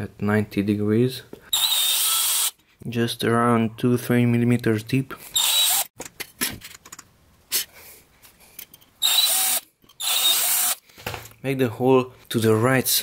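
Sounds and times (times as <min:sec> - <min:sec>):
cordless drill drilling: 0:01.5 - 0:02.6, 0:05.4 - 0:05.9, 0:09.0 - 0:10.8.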